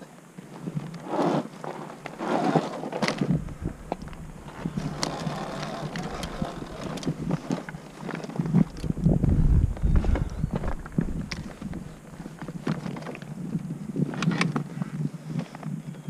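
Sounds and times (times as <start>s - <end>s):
tyres crunching over loose stones: 0.4s - 14.7s
bike rattling and knocking: 2.0s - 13.4s.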